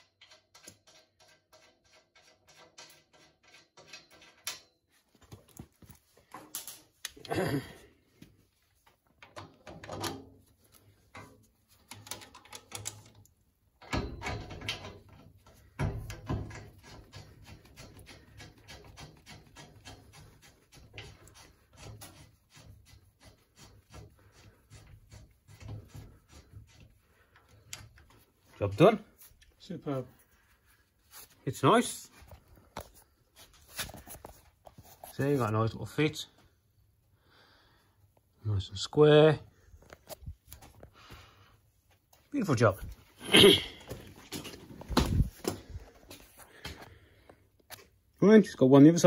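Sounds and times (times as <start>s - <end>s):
metal clicks and knocks: 0.0s - 4.9s, 9.1s - 10.4s, 11.1s - 22.0s.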